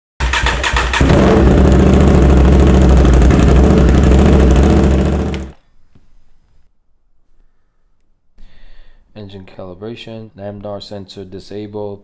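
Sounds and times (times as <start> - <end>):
motorcycle engine starting and running: 0.2 - 5.6.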